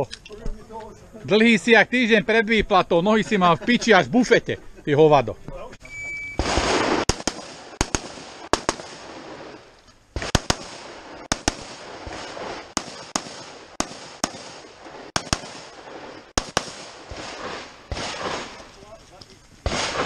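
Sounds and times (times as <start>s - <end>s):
rifle shots with echo: 6.4s - 18.8s, 19.6s - 20.0s.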